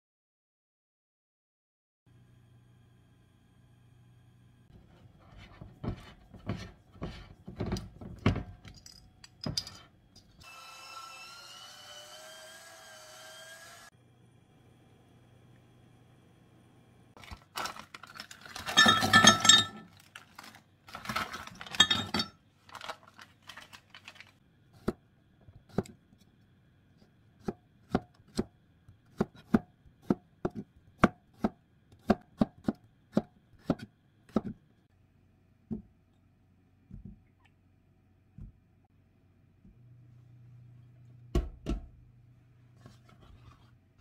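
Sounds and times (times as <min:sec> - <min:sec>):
clattering and rustling: 0:17.2 - 0:24.4.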